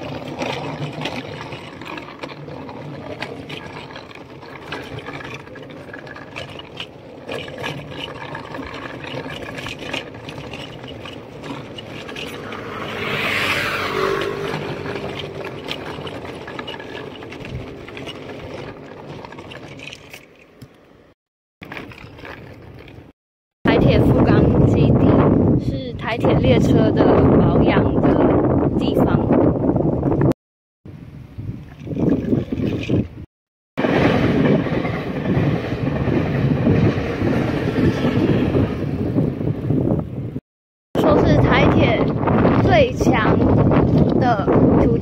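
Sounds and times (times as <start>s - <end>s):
road noise: 0.0s - 23.1s
vehicle passing by: 11.8s - 16.7s.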